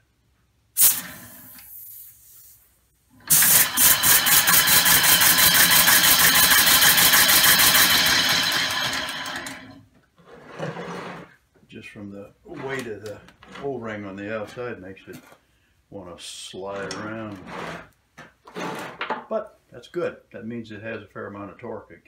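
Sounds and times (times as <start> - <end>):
compressed-air engine pulsing: 3.3 - 9.0.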